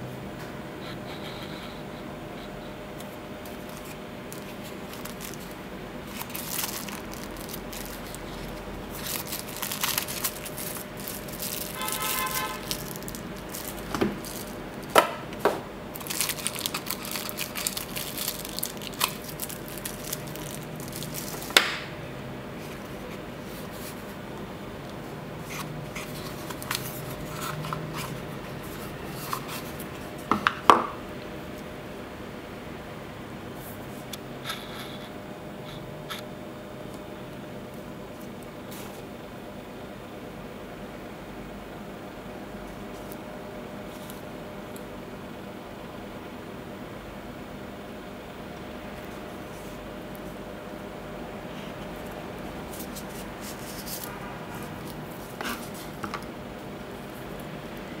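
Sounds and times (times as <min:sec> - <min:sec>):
plastic wrapping crinkling: 0:03.5 - 0:15.3, 0:15.9 - 0:21.8, 0:26.0 - 0:30.0.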